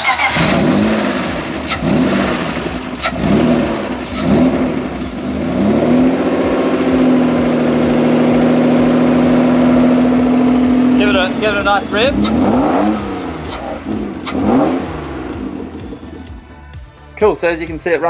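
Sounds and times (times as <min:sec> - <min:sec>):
car engine revving and idling: 0:00.0 - 0:17.1.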